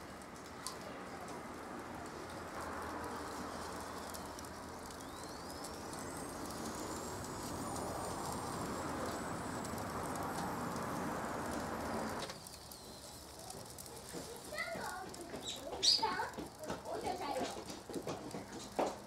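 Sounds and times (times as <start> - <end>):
coals crackling: 0.0 - 19.0
food sizzling on a grill: 0.0 - 19.0.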